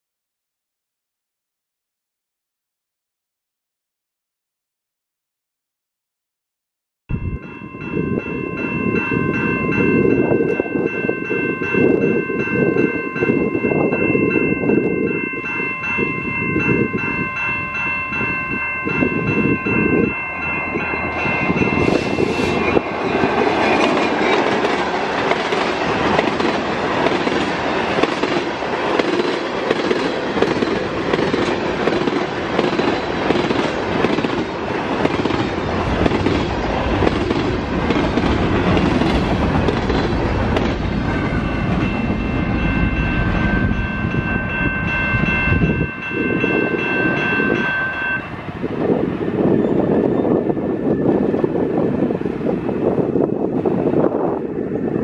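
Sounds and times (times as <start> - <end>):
level crossing bell ringing: 7.1 - 23.4, 41.0 - 48.4
diesel locomotive engine: 7.1 - 55.0
train wheels clattering on rails: 21.1 - 48.3.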